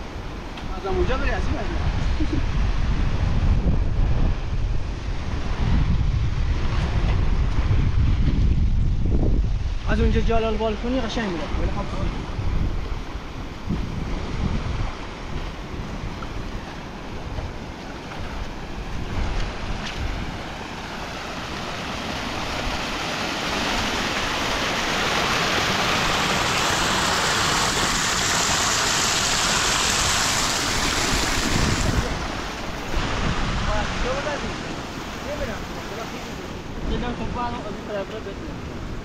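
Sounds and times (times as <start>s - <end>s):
wind buffeting microphone: 0.0s - 39.0s
floodwater rushing over rocks: 9.8s - 39.0s.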